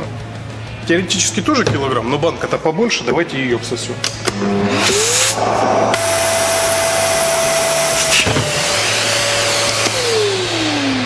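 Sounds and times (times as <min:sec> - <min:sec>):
vacuum cleaner motor whine: 0:04.3 - 0:11.0
rush of air: 0:04.4 - 0:07.7.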